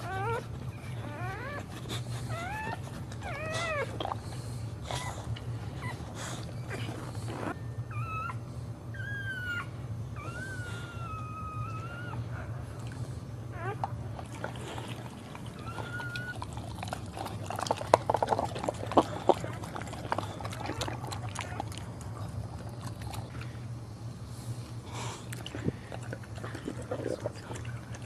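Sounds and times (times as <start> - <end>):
puppy whining: 0.0 - 23.8
steady low hum: 0.0 - 28.0
dog licking wet slurping: 14.2 - 23.6, 25.3 - 28.0.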